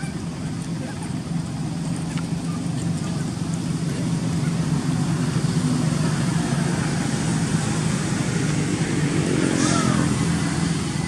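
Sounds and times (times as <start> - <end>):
vehicle engine hum: 0.0 - 11.0.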